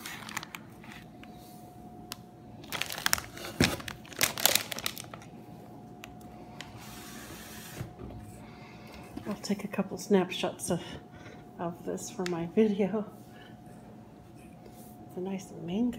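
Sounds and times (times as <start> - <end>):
plastic bags crinkling: 0.0 - 1.1, 2.6 - 5.3.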